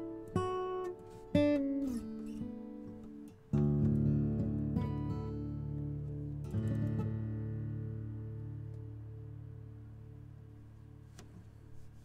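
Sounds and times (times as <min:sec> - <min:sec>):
acoustic guitar chord strummed: 0:00.0 - 0:12.0.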